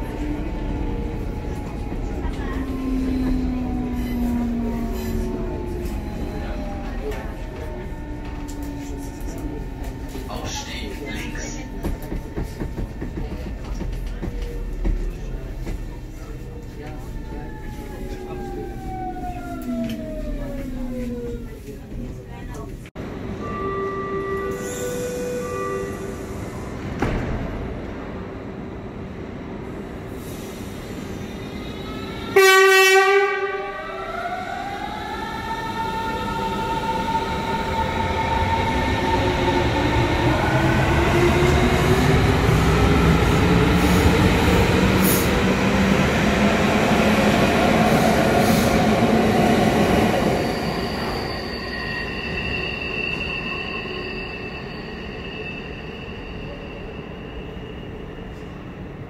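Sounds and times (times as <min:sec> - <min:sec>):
train signal tone: 0:23.2 - 0:26.8
train wheels squealing: 0:50.2 - 0:58.8.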